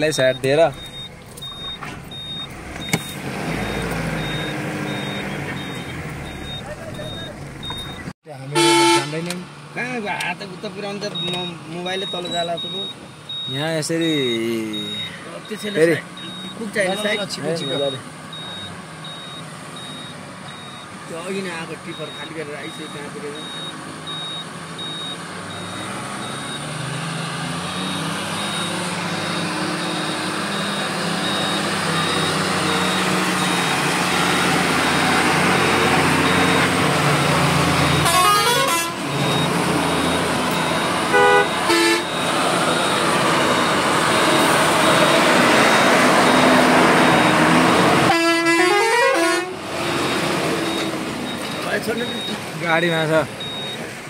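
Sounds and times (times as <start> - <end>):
heavy vehicle engine running: 0.0 - 8.1, 21.8 - 48.5
multi-note truck horn: 8.5 - 9.3, 38.0 - 39.2, 41.1 - 42.2, 48.0 - 49.6
short horn toots: 8.5 - 9.3, 41.1 - 42.1.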